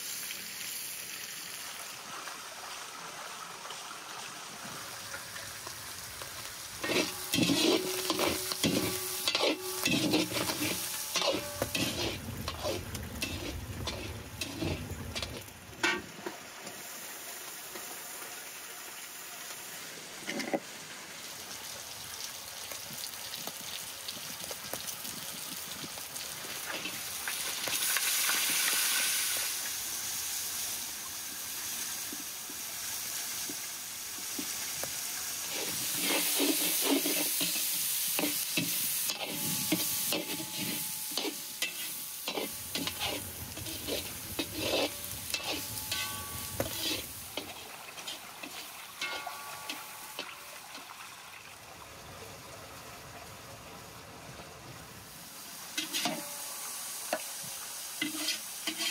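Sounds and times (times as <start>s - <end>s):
onion and tomato sizzling: 0.0s - 53.4s, 54.3s - 58.9s
metal skimmer scraping a pan: 6.8s - 16.4s, 26.7s - 28.1s, 35.5s - 50.8s, 55.8s - 57.2s, 58.0s - 58.9s.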